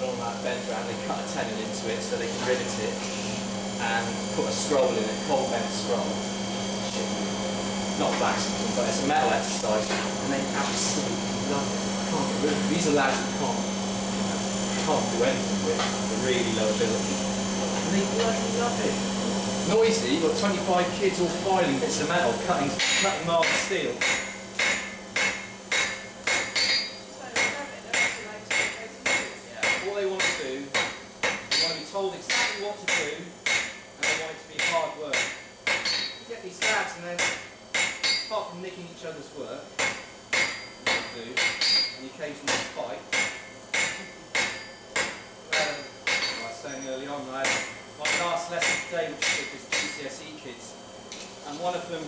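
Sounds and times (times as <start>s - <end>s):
hammer striking steel on anvil: 22.8s - 38.4s, 39.8s - 46.8s, 47.4s - 50.0s.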